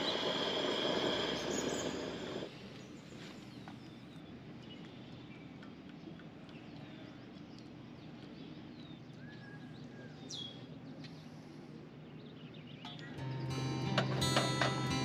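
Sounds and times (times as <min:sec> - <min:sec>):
bird whistle: 0:00.0 - 0:02.4
birds chirping: 0:00.0 - 0:15.0.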